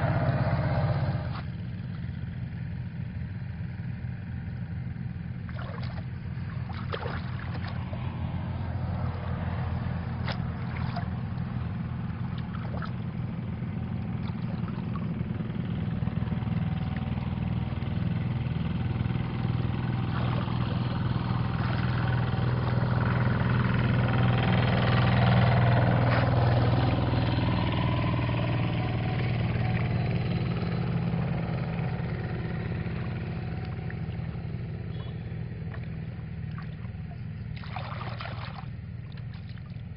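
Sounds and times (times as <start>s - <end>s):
engine drone: 0.0s - 39.9s
water sloshing: 5.5s - 8.3s, 8.9s - 17.9s, 19.4s - 27.7s, 29.3s - 39.9s.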